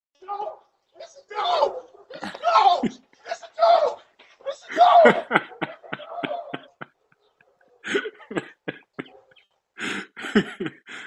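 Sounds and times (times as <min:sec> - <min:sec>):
person laughing in breathy bursts: 0:04.7 - 0:07.1, 0:07.8 - 0:09.2, 0:09.8 - 0:11.0.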